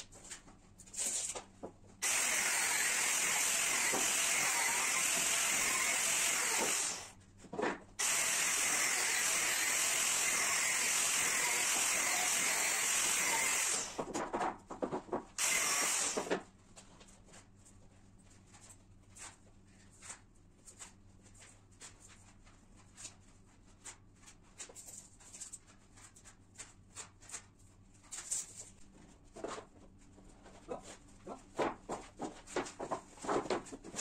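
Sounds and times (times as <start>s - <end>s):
angle grinder cutting wood: 2.0s - 7.1s, 8.0s - 14.0s, 15.4s - 16.4s.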